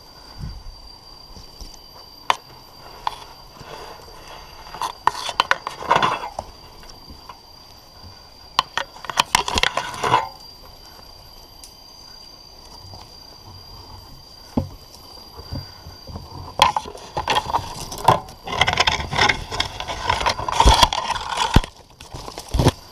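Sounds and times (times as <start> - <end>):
gear scraping against tree bark: 2.3 - 7.4, 8.0 - 10.5, 12.6 - 22.9.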